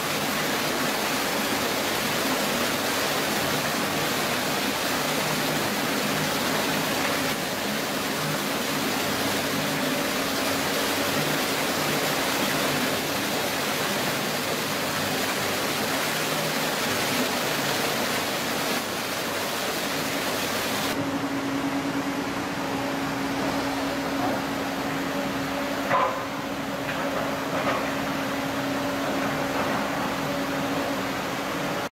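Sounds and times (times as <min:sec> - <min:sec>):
water rushing: 0:00.0 - 0:31.9
excavator diesel engine hum: 0:21.0 - 0:31.9.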